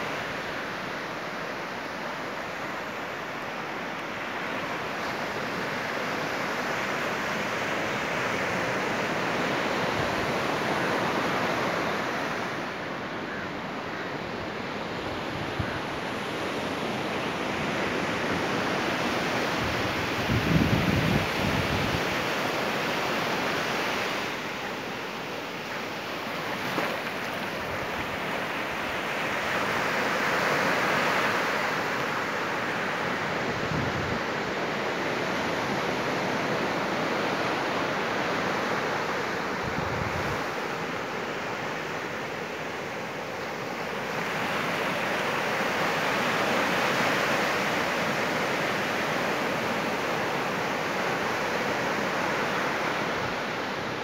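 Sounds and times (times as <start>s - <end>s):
surf breaking on beach: 15.4s - 54.0s.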